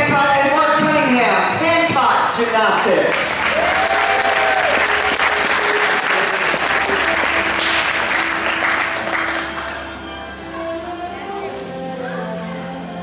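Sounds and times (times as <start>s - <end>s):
background music: 0.0s - 13.0s
audience applauding: 3.1s - 10.1s.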